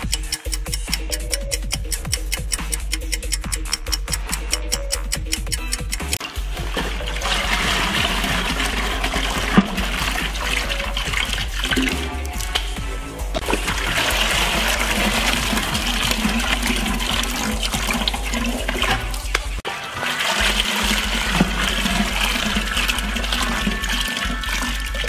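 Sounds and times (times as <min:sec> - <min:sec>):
bags splashing into buckets of water: 0:06.2 - 0:12.8, 0:13.4 - 0:25.0
water rushing: 0:06.2 - 0:12.8, 0:13.4 - 0:25.0.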